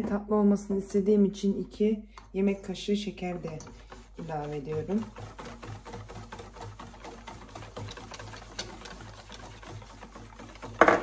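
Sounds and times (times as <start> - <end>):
whisk scraping metal bowl: 2.7 - 11.0.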